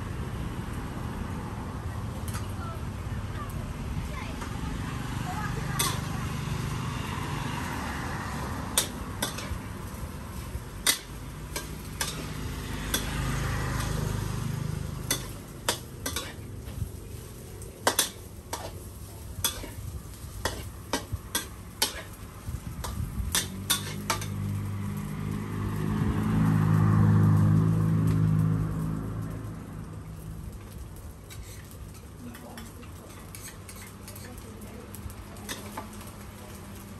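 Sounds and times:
frying sizzle: 0.0 - 36.9
metal spatula scraping a wok: 5.8 - 6.1, 8.3 - 24.5, 31.2 - 34.5, 35.4 - 36.0.

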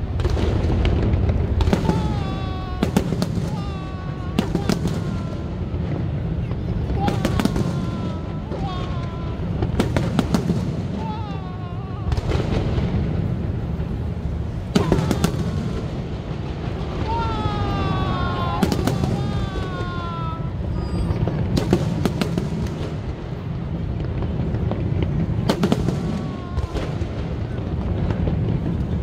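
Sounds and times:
firework whistles: 0.5 - 23.5.

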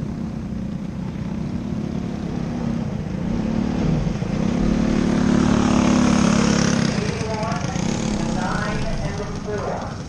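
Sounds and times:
sprint car engine: 0.0 - 10.0.

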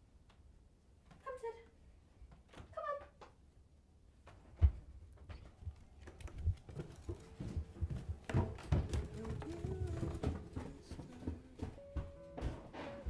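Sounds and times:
footsteps on carpeted stairs: 4.2 - 13.0
held musical note: 7.3 - 13.0.

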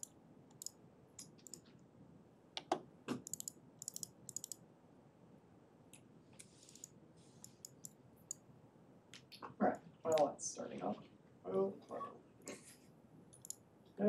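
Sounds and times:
keyboard and mouse clicking: 0.0 - 1.7, 2.6 - 4.6, 6.4 - 8.4, 13.3 - 13.6.

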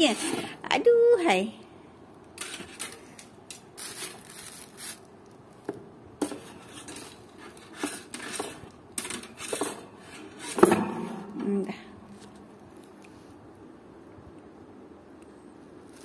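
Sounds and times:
rustling: 2.4 - 13.4, 15.8 - 16.0.

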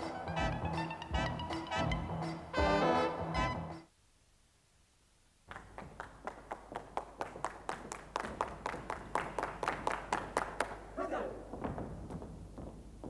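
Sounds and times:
music: 0.0 - 3.9
rhythmic hand clapping: 5.5 - 11.0.

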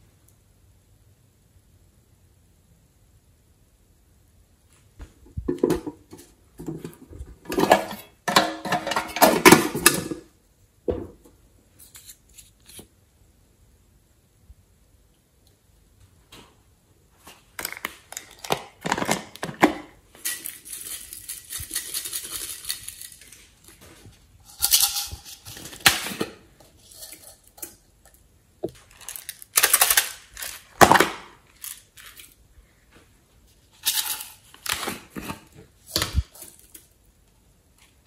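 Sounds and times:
plastic containers clicking and rattling: 5.5 - 10.3, 17.5 - 23.8, 28.7 - 32.4
glitter rustling from plastic case: 17.2 - 27.7, 28.7 - 36.9.

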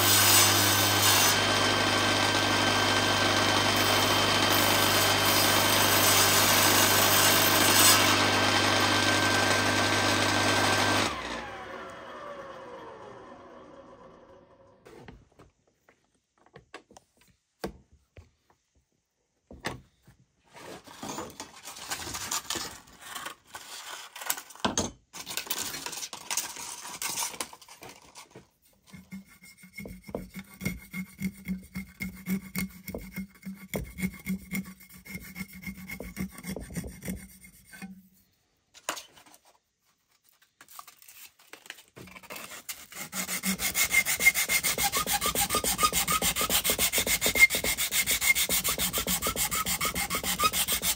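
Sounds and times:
hand saw cutting wood: 0.0 - 12.2, 28.9 - 38.1, 42.1 - 50.9
sandpaper rubbing on wood: 42.7 - 50.9.

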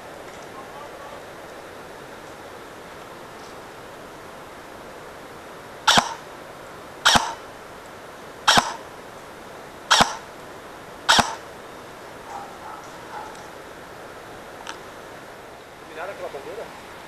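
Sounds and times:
airsoft gun shots: 5.9 - 6.3, 7.0 - 7.5, 8.5 - 8.9, 9.9 - 10.3, 11.1 - 11.5.

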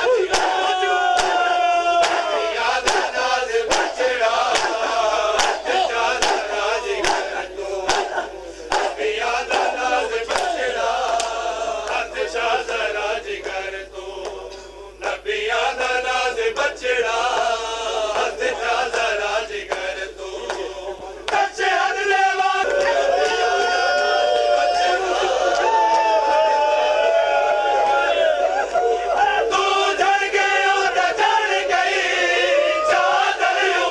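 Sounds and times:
men chanting together: 0.0 - 33.9
chest-beating slaps: 1.2 - 1.4, 2.0 - 3.1, 3.7 - 4.8, 5.4 - 7.3, 7.9 - 9.7.

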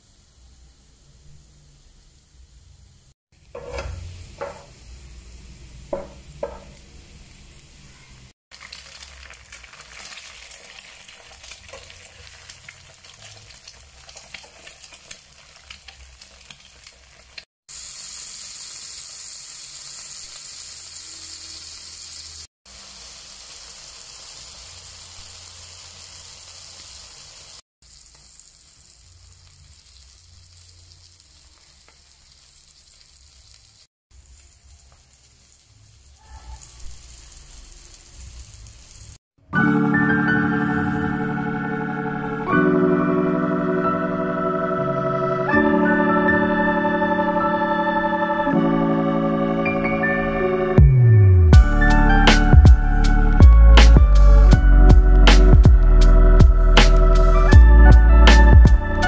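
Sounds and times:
metal spatula stirring: 3.5 - 4.7, 8.6 - 17.4
food sizzling in hot oil: 8.5 - 39.2.

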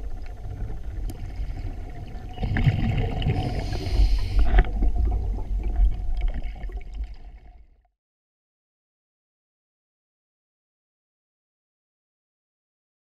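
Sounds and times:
regulator bubbles gurgling: 0.0 - 7.9
underwater rumble: 0.0 - 7.9.

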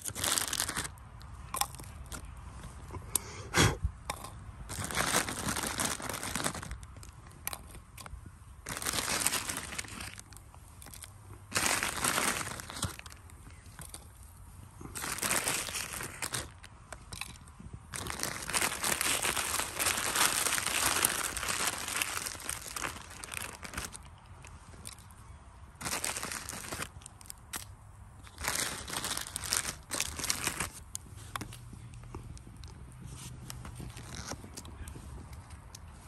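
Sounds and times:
plastic wrapper crinkling: 0.0 - 1.0, 4.7 - 7.8, 8.6 - 14.2, 14.8 - 25.1, 25.8 - 31.0, 32.6 - 34.6
dry noodles crunching: 0.0 - 3.3, 4.1 - 36.0.

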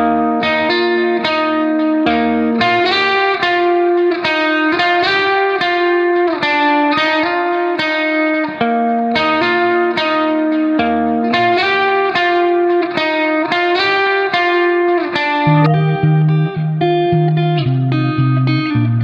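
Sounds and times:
instrumental melody: 0.0 - 19.0.

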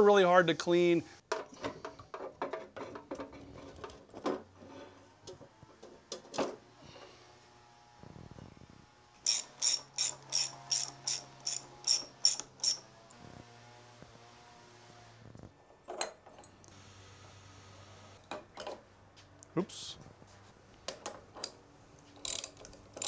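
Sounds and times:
ratchet wrench clicking: 9.2 - 12.8, 22.2 - 23.0.

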